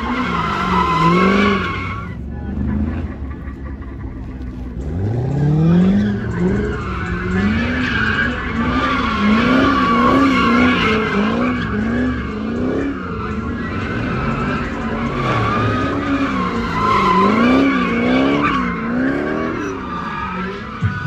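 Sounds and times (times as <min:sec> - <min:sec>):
car engine revving hard: 0:04.8 - 0:20.4
tyres squealing: 0:05.8 - 0:21.0.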